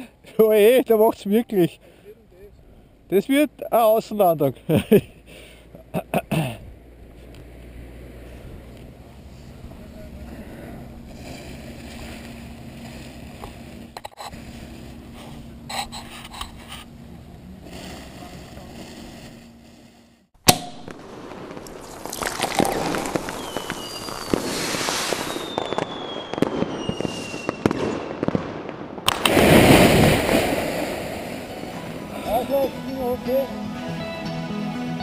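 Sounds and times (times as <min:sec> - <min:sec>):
fireworks crackling and popping: 0:10.9 - 0:33.1
fireworks whistling: 0:17.6 - 0:28.4.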